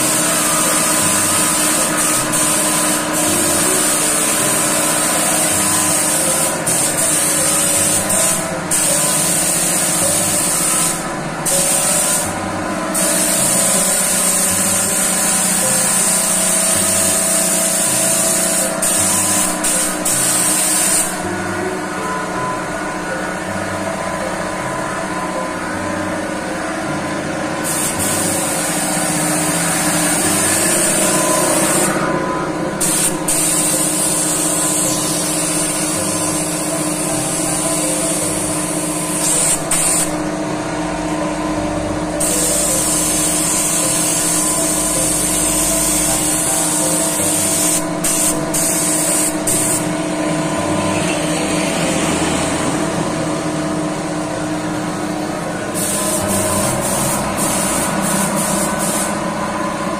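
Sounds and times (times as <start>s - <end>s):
paint spray gun hissing: 0.0s - 12.4s, 13.0s - 21.2s, 27.6s - 32.0s, 32.8s - 40.2s, 42.2s - 49.9s, 55.7s - 59.2s
steady hum: 0.0s - 59.9s.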